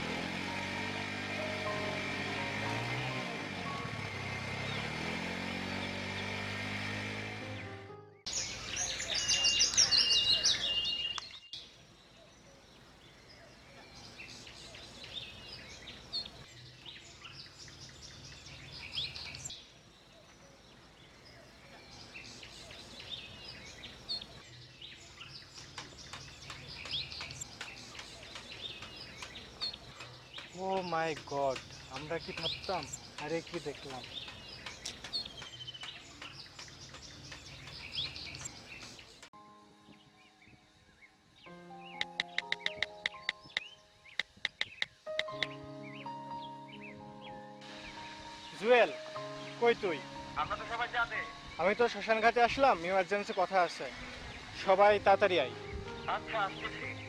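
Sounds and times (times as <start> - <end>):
small birds chirping: 0.0 - 7.6, 8.2 - 57.0
soft sustained music tones: 0.0 - 9.0, 39.4 - 44.2, 45.0 - 57.0.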